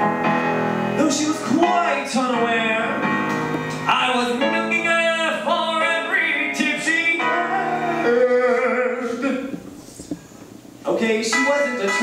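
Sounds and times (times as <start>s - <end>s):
man singing: 1.0s - 3.1s, 3.9s - 9.6s.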